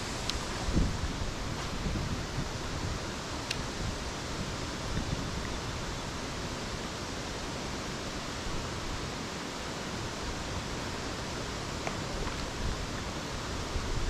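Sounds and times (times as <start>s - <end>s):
wind buffeting microphone: 0.0s - 3.1s, 3.7s - 5.8s
rippling water: 0.0s - 14.0s.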